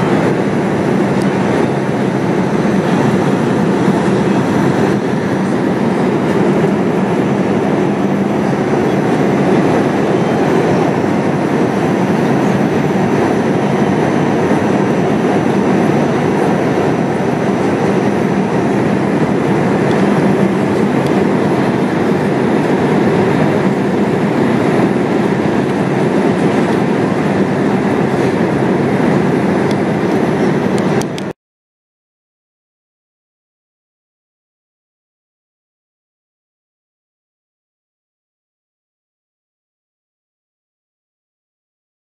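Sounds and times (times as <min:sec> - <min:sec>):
airliner cabin engine rush: 0:00.0 - 0:31.4.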